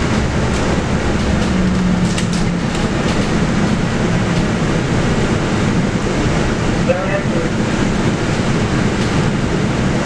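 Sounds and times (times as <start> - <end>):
rattles and clicks: 0.0 - 4.6
bus diesel engine running: 0.0 - 10.0
road rumble: 0.0 - 10.0.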